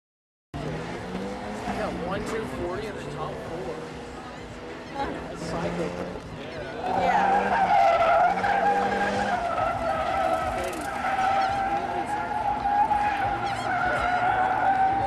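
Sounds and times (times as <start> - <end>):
car tires squealing: 4.8 - 15.0.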